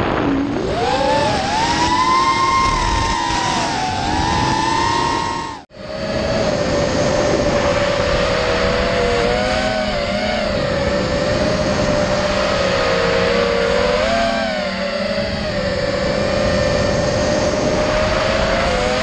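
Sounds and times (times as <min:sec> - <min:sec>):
drone motors whining: 0:00.0 - 0:19.0.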